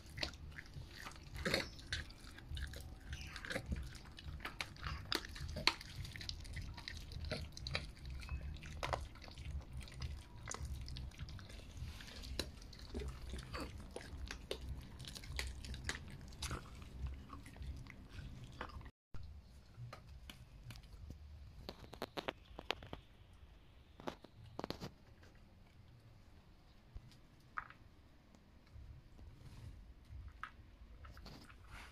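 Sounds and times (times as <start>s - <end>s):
dog chewing a bone: 0.0s - 18.9s.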